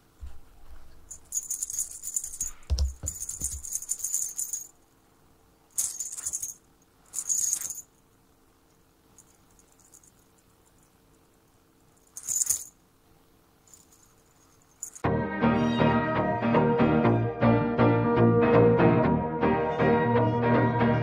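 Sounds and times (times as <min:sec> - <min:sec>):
rattle jingling: 0:01.1 - 0:04.8, 0:05.7 - 0:08.0, 0:09.1 - 0:10.9, 0:12.0 - 0:12.8, 0:13.7 - 0:15.0.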